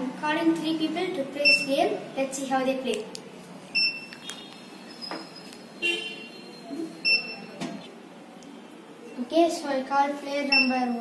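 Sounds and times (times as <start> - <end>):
high-pitched buzzer beeps: 1.4 - 1.7, 3.7 - 4.1, 4.9 - 7.6, 10.5 - 11.0.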